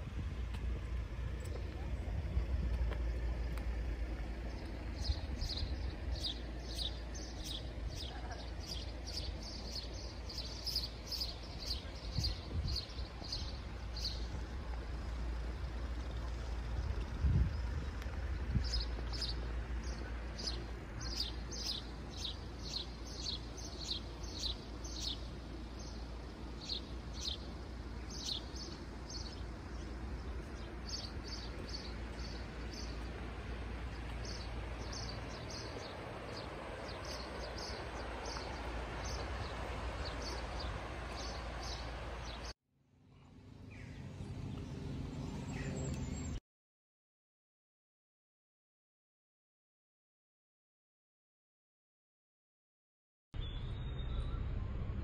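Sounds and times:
rushing outdoor background noise: 0:00.0 - 0:46.4, 0:53.4 - 0:55.0
small birds chirping: 0:01.2 - 0:46.4
low hum: 0:53.4 - 0:55.0.

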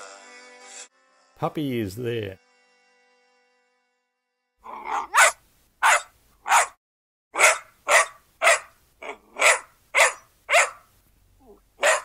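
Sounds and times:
dog barking: 0:04.8 - 0:06.8, 0:07.4 - 0:10.9, 0:11.5 - 0:12.0.

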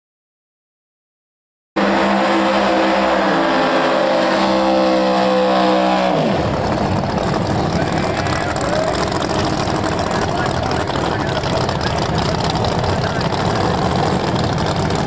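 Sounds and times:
drag race car engines: 0:01.8 - 0:15.0.

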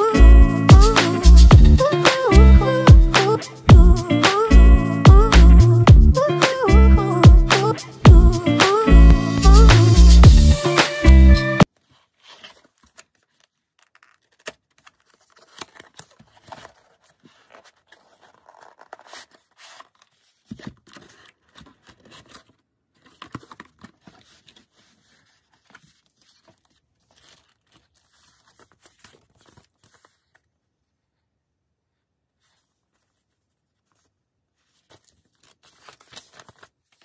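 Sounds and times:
cardboard and paper rustling: 0:11.6 - 0:31.2, 0:32.4 - 0:37.0.

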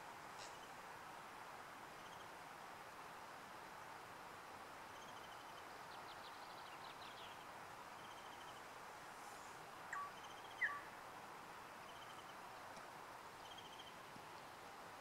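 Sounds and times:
steady outdoor hiss: 0:00.0 - 0:15.0
small birds chirping and trilling: 0:09.9 - 0:10.9.

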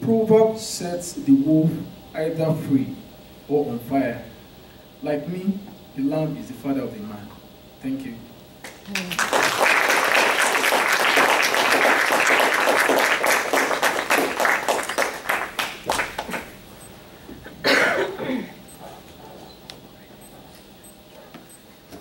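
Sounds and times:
audience applauding: 0:08.7 - 0:16.5.

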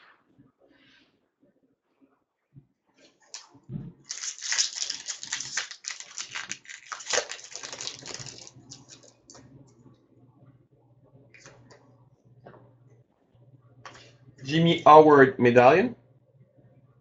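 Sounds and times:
foil wrapper crinkling: 0:04.0 - 0:09.4.

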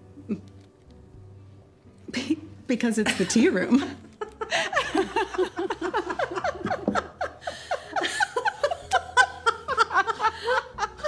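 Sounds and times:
women laughing: 0:03.1 - 0:11.0.

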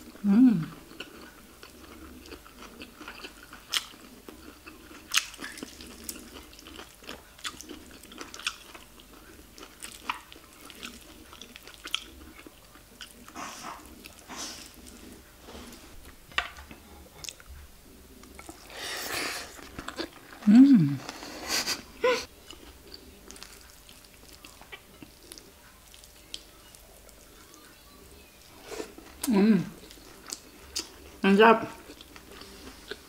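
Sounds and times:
person chewing with mouth clicks: 0:00.0 - 0:15.2, 0:22.4 - 0:27.6, 0:28.8 - 0:31.2.

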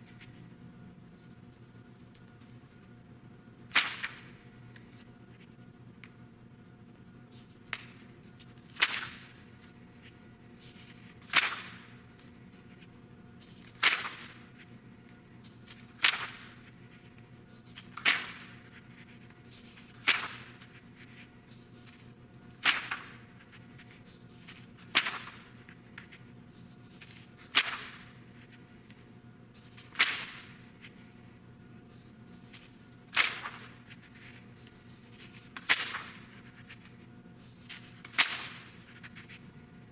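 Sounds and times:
magazine pages turning: 0:15.4 - 0:31.2, 0:31.9 - 0:39.5.

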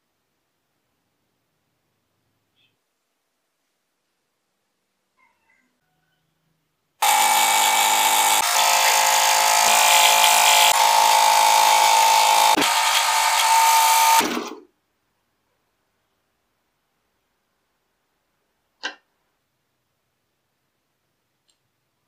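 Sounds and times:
scroll saw cutting wood: 0:07.0 - 0:14.6.

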